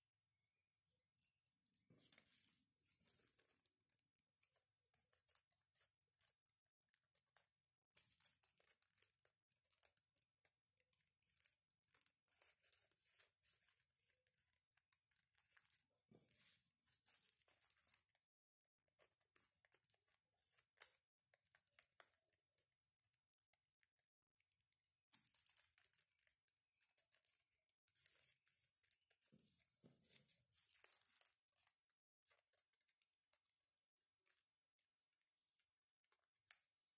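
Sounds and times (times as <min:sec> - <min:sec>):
plastic sleeve crinkling: 0:28.0 - 0:31.7.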